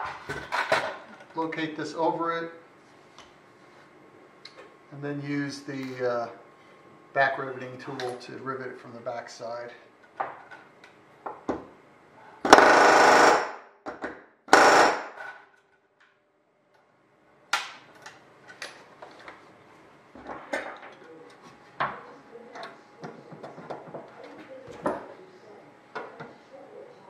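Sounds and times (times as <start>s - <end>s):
pneumatic rivet gun hammering: 12.5s - 13.5s, 14.5s - 15.3s.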